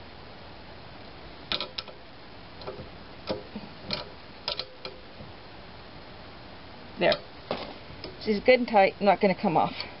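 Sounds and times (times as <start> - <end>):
socket ratchet clicking: 1.5 - 2.0, 2.6 - 5.1.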